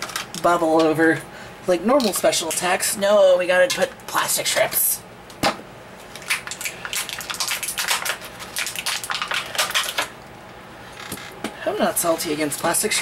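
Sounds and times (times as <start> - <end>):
plastic packaging crinkling: 6.0 - 10.2.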